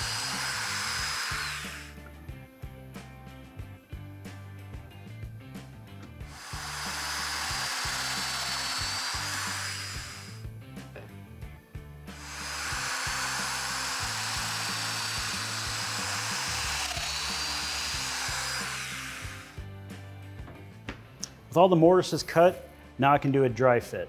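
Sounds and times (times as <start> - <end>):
power joiner whining: 0.0 - 2.0, 6.3 - 10.4, 12.1 - 19.6.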